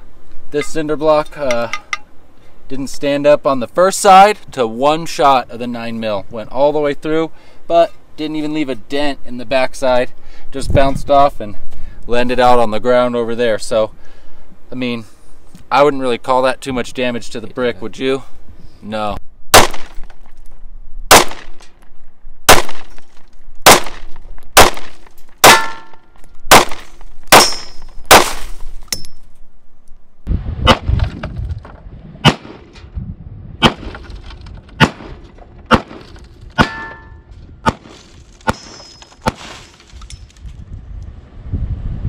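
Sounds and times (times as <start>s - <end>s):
wind rumble on microphone: 10.5s - 12.7s, 30.2s - 38.4s, 40.0s - 42.0s
handgun shots: 19.5s - 20.0s, 21.1s - 21.6s, 22.5s - 23.0s, 23.6s - 28.5s
metallic ring: 28.9s - 29.4s, 36.6s - 37.3s, 38.5s - 39.2s.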